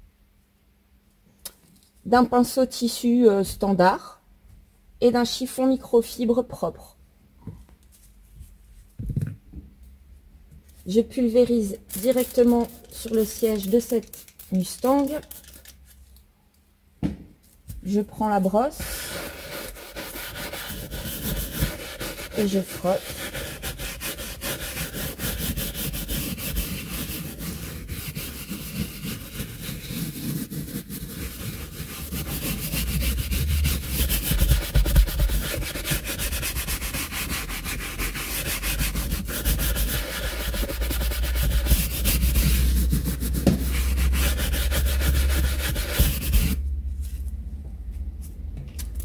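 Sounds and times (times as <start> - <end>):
brush scrubbing wet leather: 18.8 - 46.6.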